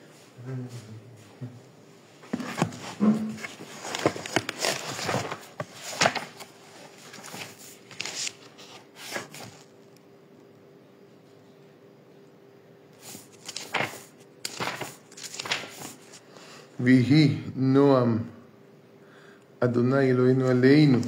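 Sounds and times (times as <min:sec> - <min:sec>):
faint steady hum: 0:00.0 - 0:21.0
rustling and clicks of handling: 0:02.3 - 0:10.1.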